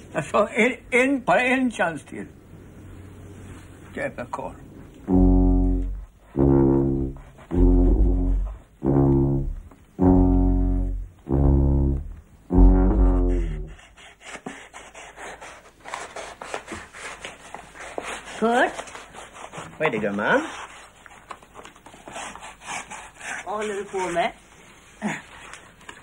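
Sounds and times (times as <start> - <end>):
low sousaphone notes: 5.1 - 13.8.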